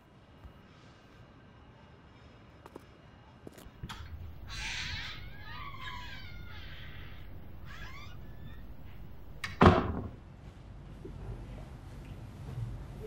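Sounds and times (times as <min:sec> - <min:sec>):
hinges squeaking: 0:03.6 - 0:10.2
door shutting with a thud: 0:08.1 - 0:10.2.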